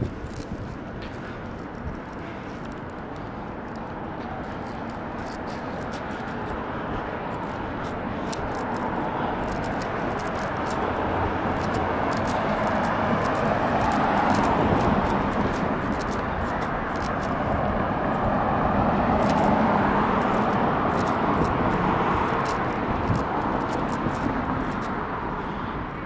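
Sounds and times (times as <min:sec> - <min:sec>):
passing vehicle rushing: 0:17.1 - 0:25.3.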